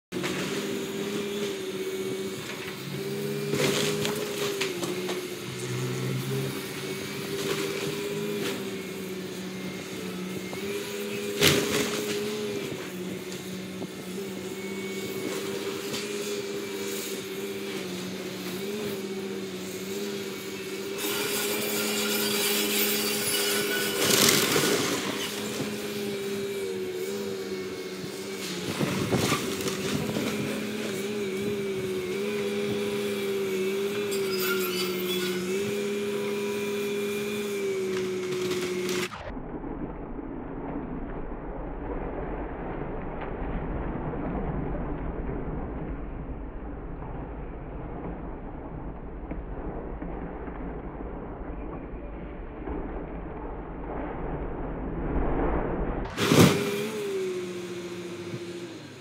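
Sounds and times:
excavator diesel engine running: 0.1 - 39.3, 56.0 - 59.0
wood breaking and debris crashing: 3.5 - 5.2, 22.0 - 25.7, 28.4 - 31.0, 56.0 - 58.0.

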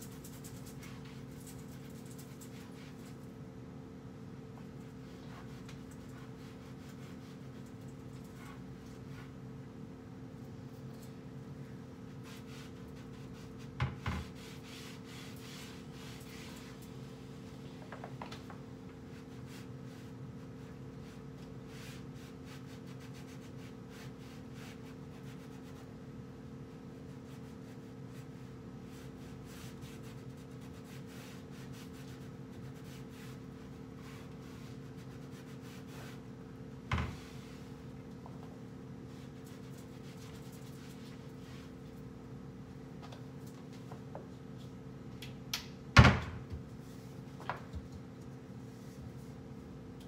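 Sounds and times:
steady low hum: 0.0 - 50.0
cloth wiping cabinet surfaces: 12.1 - 17.2, 28.9 - 36.3, 36.9 - 37.9.

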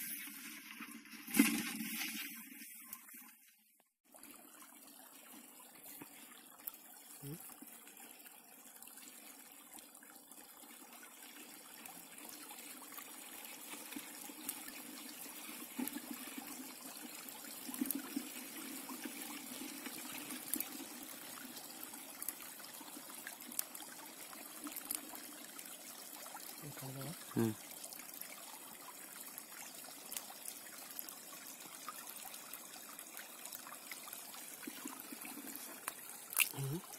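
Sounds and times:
water trickling: 4.1 - 36.9.

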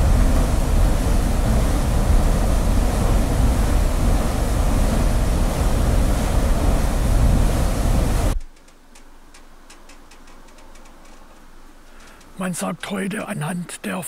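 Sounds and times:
deep rumble: 0.0 - 8.4
rush of falling water: 0.0 - 8.4.

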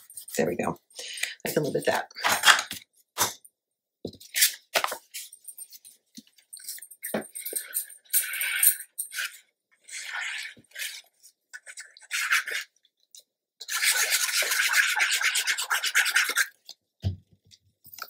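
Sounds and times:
glue bottle tip scratching paper: 13.7 - 16.5.

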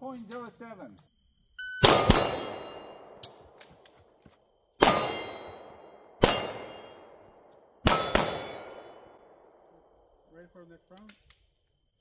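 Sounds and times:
pistol shots: 1.8 - 3.5, 4.8 - 9.6
steel plate ringing: 4.9 - 7.0.

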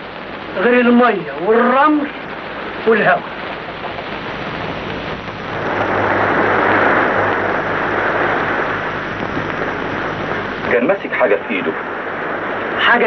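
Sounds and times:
low steady hum: 0.0 - 13.0
wind rushing: 4.2 - 13.0.

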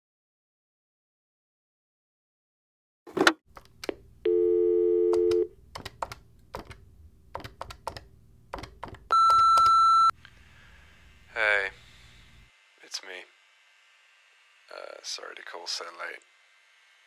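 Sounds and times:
answering machine beep: 4.3 - 5.5, 9.1 - 10.1
low phone tone: 4.3 - 5.5, 9.1 - 10.1
phone line clicks: 4.3 - 5.5, 9.1 - 10.1.

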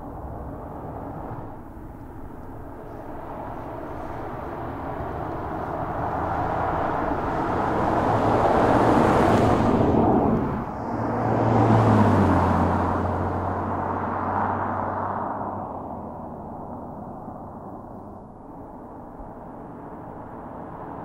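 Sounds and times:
car driving by at speed: 3.2 - 16.9.

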